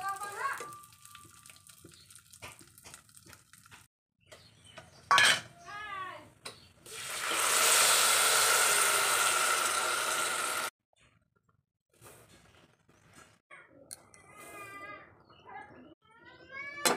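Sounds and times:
milk sizzling in hot pot: 0.0 - 3.9, 6.9 - 10.7.

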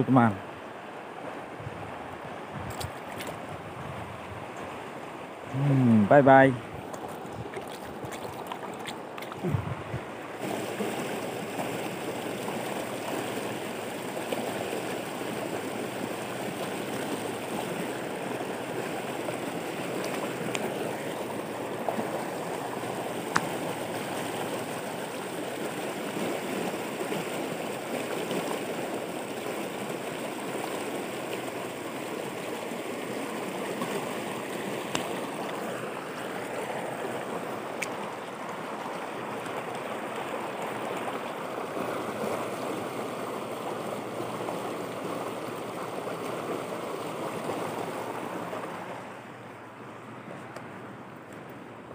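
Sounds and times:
river rushing over rocks: 0.2 - 50.2
fish splashing in water: 6.8 - 9.6, 10.4 - 28.7, 33.7 - 42.9.

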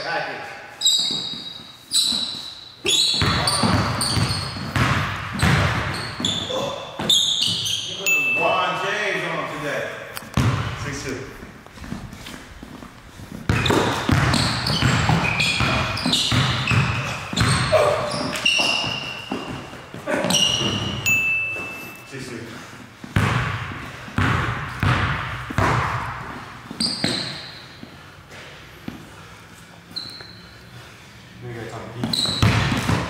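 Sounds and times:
sneakers squeaking: 0.7 - 9.1, 10.2 - 30.9, 31.7 - 33.0
basketball dribbling on gym floor: 3.1 - 7.7, 10.4 - 10.8, 11.8 - 21.8, 23.0 - 27.6, 32.0 - 33.0.

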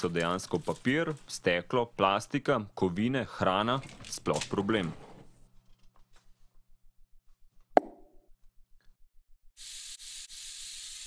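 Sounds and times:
sharp pop with ringing tone: 7.8 - 8.2.

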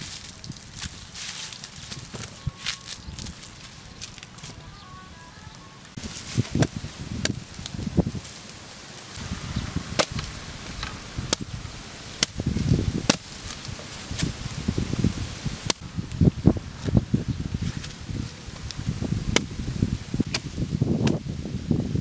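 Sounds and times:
knife chopping coconut husks: 9.9 - 14.3.

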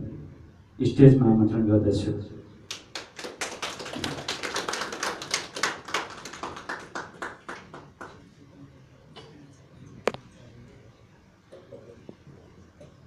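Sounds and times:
small audience clapping: 2.7 - 8.4.

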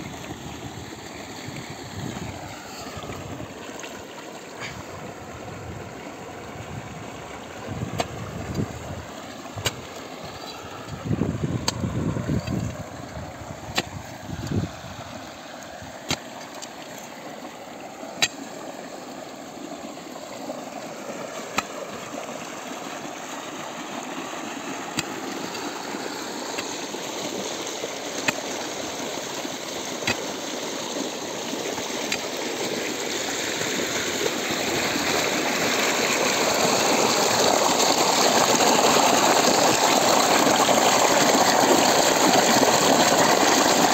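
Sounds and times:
water gushing from a pump outlet: 0.0 - 43.9
iron bar striking earth: 13.7 - 14.6, 18.2 - 18.5.

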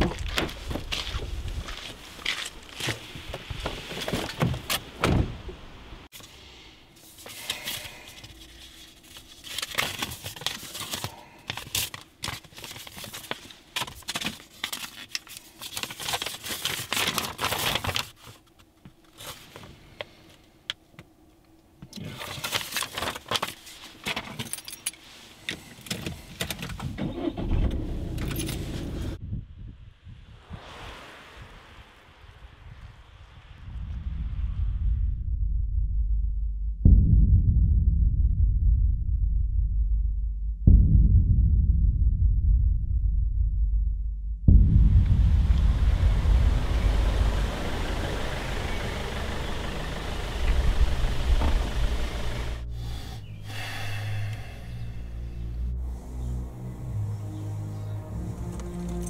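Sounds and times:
paper rustling: 7.0 - 19.8, 22.0 - 25.4
keys jangling: 24.2 - 25.0, 28.2 - 28.8.

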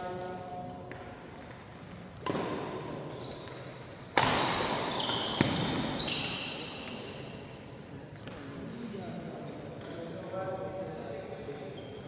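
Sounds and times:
rackets striking shuttlecock: 0.8 - 6.0
shoes squeaking on court: 3.1 - 3.8, 4.8 - 7.2, 11.6 - 12.0.

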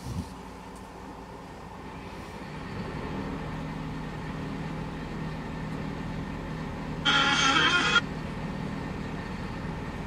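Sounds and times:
truck diesel engine humming: 0.0 - 10.0.

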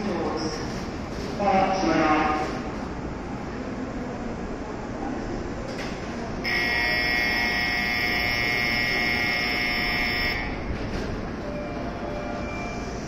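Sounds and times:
electric buzzer bell ringing: 6.5 - 10.5.

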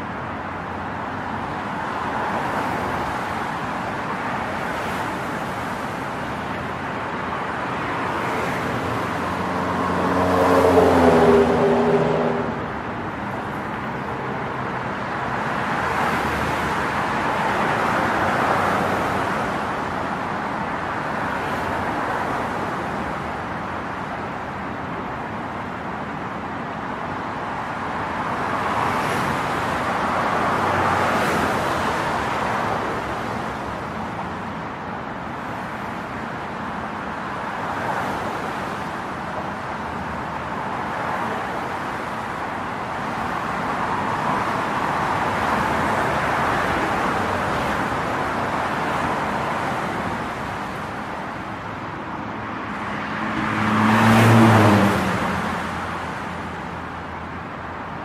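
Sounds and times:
cars passing: 0.0 - 58.0
loud vehicle engine passing: 8.8 - 13.0, 52.8 - 56.1.

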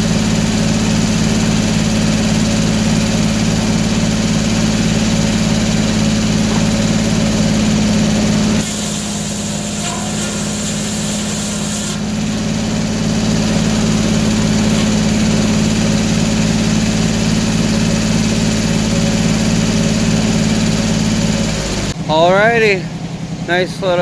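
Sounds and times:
mill engine running: 0.0 - 24.0
saw blade spinning free: 4.5 - 17.0
saw blade cutting wood hiss: 8.6 - 12.3.

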